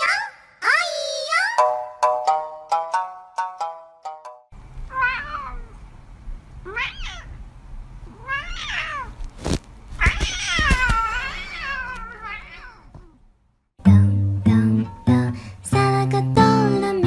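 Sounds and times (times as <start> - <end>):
cat meowing: 4.9 - 5.8, 6.6 - 7.4, 8.0 - 9.2, 10.0 - 13.2.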